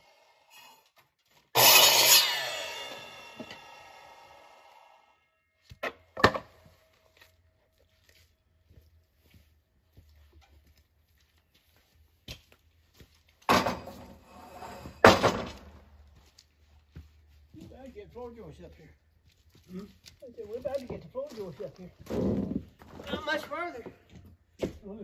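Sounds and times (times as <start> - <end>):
saw blade spinning down: 1.6 - 5.1
board scraping and thudding on wood: 5.8 - 6.7, 13.5 - 15.8, 22.0 - 23.2.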